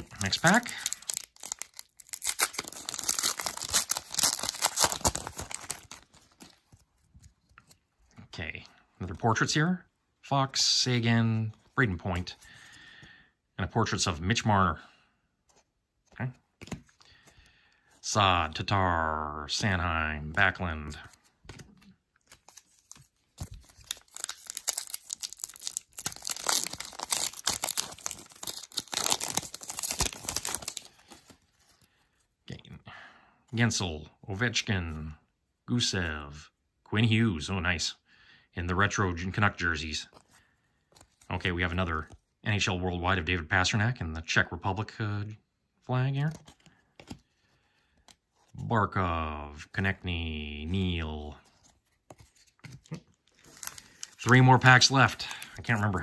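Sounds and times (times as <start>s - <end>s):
foil wrapper tearing and crinkling: 0.0s - 6.3s, 22.5s - 31.1s, 53.3s - 56.0s.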